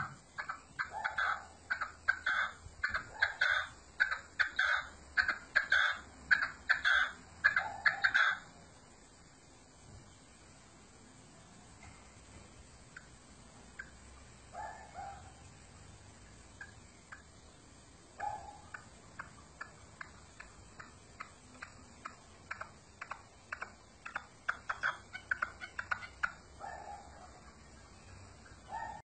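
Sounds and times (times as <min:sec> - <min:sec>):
partridge calling: 0:00.0 - 0:08.5, 0:13.7 - 0:15.4, 0:16.3 - 0:17.6, 0:18.2 - 0:29.0.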